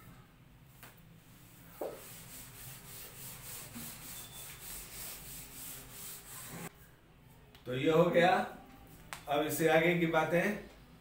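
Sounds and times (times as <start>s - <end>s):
duster wiping blackboard: 1.7s - 6.7s.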